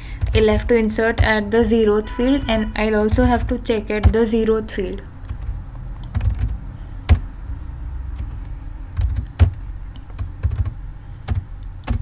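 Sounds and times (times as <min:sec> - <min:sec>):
low steady hum: 0:00.0 - 0:12.0
keyboard keys clicking: 0:00.2 - 0:01.4, 0:02.9 - 0:04.5, 0:05.2 - 0:07.3, 0:08.1 - 0:12.0.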